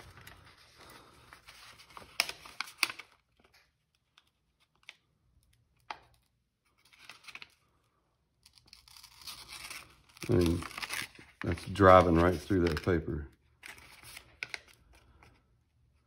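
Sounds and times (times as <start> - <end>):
paper rustling: 0.0 - 5.0, 8.8 - 15.4.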